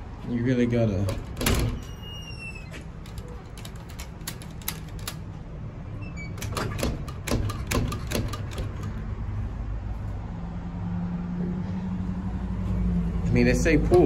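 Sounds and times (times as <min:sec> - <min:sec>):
glass doors rattling against lock: 0:00.6 - 0:09.2.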